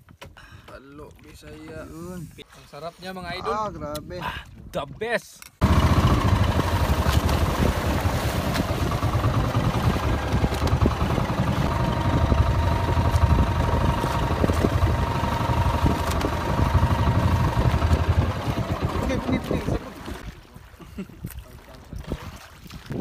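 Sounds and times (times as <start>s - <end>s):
boat engine rumbling: 5.6s - 20.6s.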